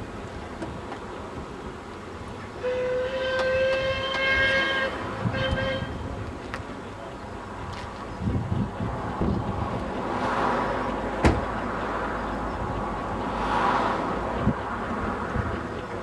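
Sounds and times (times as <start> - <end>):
steam locomotive whistle blasts: 2.6 - 6.0.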